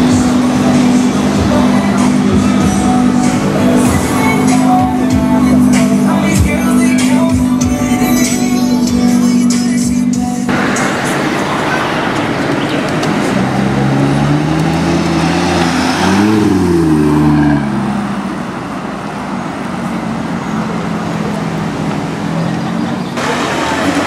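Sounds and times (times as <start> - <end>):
street traffic noise: 0.0 - 24.0
car engine accelerating past: 10.5 - 24.0.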